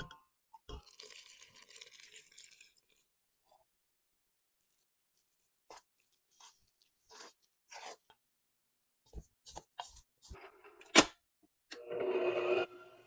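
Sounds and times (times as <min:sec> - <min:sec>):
liquid pouring into bowl: 0:00.8 - 0:03.0
hand mixing dough in bowl: 0:00.8 - 0:10.4.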